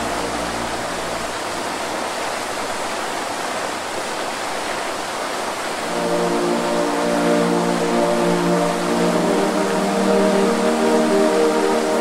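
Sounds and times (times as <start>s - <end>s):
low music notes: 0.0s - 1.9s, 5.8s - 12.0s
waterfall rushing: 0.0s - 12.0s.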